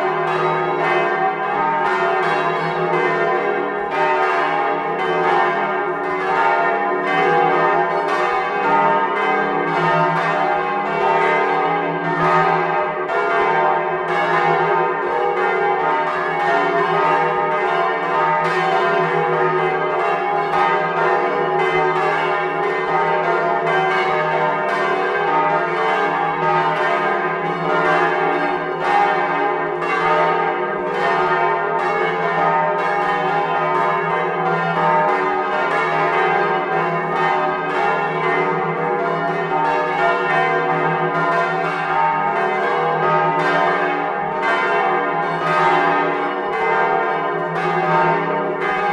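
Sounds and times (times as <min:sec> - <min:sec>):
church bells pealing: 0:00.0 - 0:48.9.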